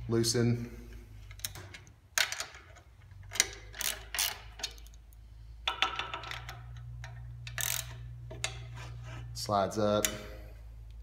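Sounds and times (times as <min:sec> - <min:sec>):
metal clicks: 0:01.2 - 0:08.7
metallic scrape: 0:08.4 - 0:09.5.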